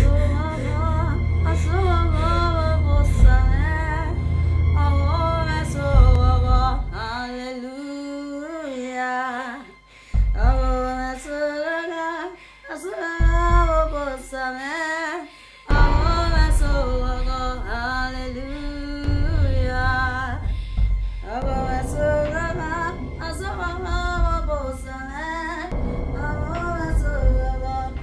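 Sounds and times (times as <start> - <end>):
deep bass accompaniment: 0.0 - 7.4, 15.7 - 28.0
woman singing slow melody: 0.0 - 28.0.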